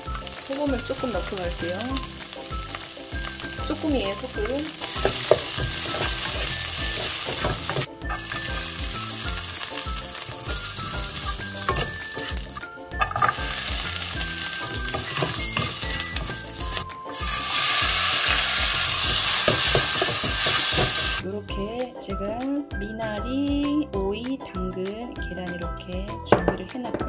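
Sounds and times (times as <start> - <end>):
vegetables sizzling in hot oil: 0.0 - 21.2
spatula stirring in pan: 4.8 - 16.8, 18.5 - 21.2.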